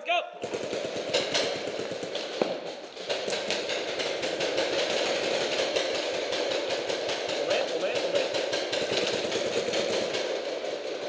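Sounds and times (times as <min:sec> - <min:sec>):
paintball markers firing rapidly: 0:00.4 - 0:11.0.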